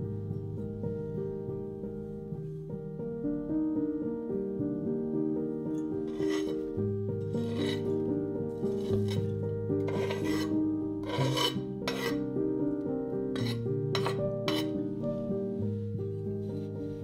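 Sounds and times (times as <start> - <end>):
background music: 0.0 - 17.0
knife scraping on wooden board: 6.1 - 6.7, 7.3 - 8.0, 8.6 - 12.2, 13.4 - 14.8.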